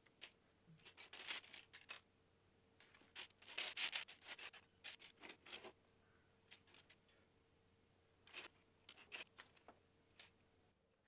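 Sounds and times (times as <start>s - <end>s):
plastic bricks clicking and rattling: 0.1s - 2.0s, 2.8s - 5.8s, 8.3s - 10.3s.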